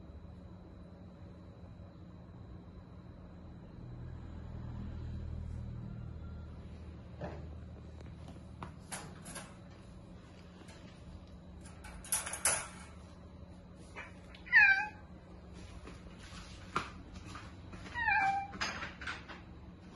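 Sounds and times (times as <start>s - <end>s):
cat meowing: 14.0s - 15.1s, 17.9s - 18.6s.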